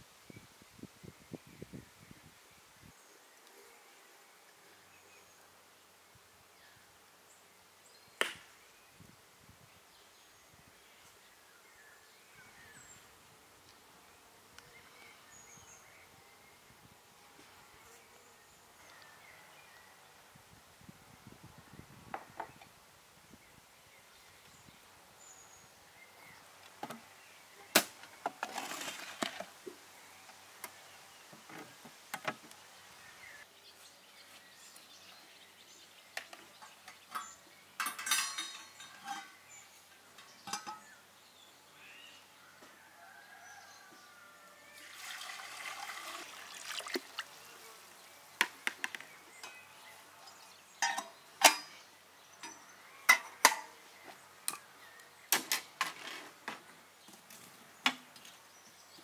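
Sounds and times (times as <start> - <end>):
metal clinks and knocks: 36.9 - 39.4, 40.4 - 40.9.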